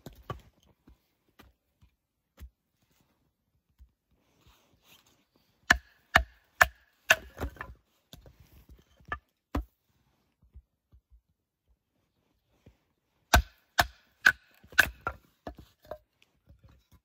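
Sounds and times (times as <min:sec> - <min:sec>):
knife chopping into log: 0:05.7 - 0:07.6, 0:13.3 - 0:15.2.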